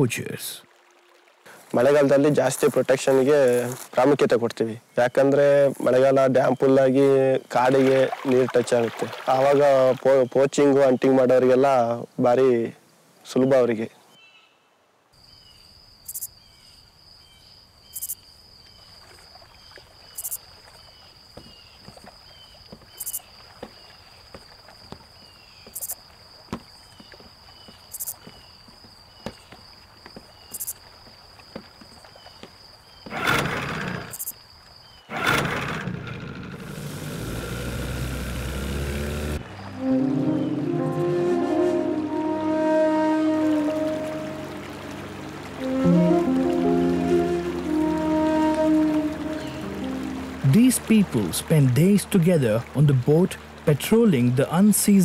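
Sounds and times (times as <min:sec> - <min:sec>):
high insect trill: 0:15.2 - 0:33.2, 0:34.0 - 0:35.1
outboard motor churning water: 0:32.9 - 0:34.2, 0:35.0 - 0:40.1, 0:42.7 - 0:55.0.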